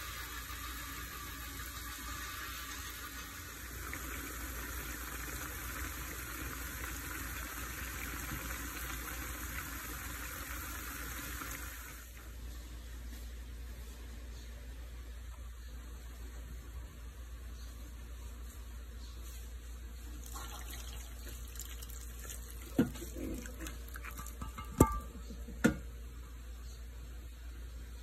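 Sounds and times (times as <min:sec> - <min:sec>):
broth simmering and bubbling: 0:00.1 - 0:12.2, 0:20.1 - 0:25.4.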